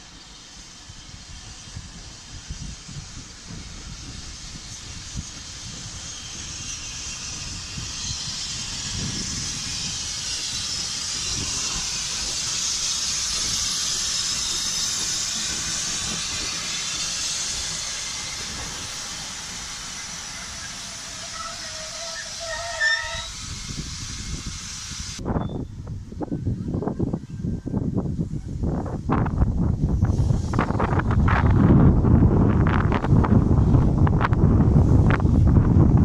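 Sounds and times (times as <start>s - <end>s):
steam hissing: 0.0s - 25.4s, 28.2s - 36.0s
wheels rumbling on rails: 0.0s - 36.0s
short squeal: 20.0s - 23.4s, 25.3s - 25.8s.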